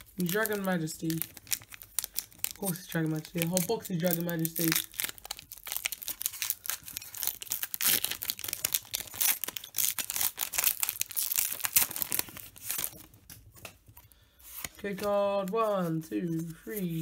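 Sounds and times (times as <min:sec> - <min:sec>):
foil wrapper tearing and crinkling: 0:00.0 - 0:13.3.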